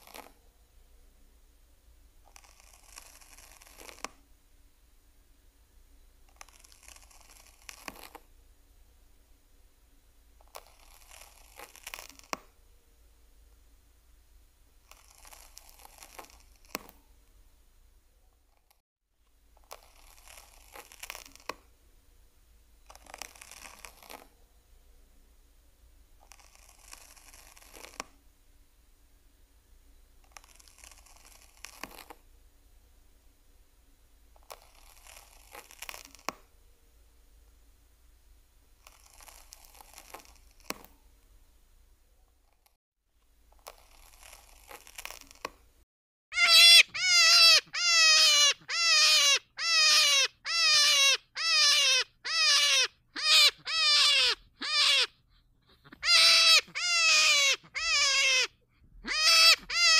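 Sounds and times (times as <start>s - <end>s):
faint crackling and rustling: 0.0s - 0.8s, 2.1s - 4.4s, 6.1s - 8.4s, 10.3s - 12.7s, 14.6s - 17.6s, 18.3s - 21.8s, 22.4s - 24.6s, 25.8s - 28.6s, 30.0s - 32.4s, 34.2s - 45.9s.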